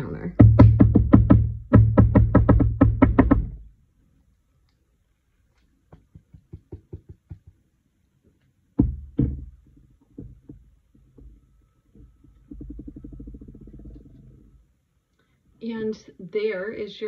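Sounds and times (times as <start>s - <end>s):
bottle knocking on countertop: 5.9s - 7.6s, 8.8s - 10.7s.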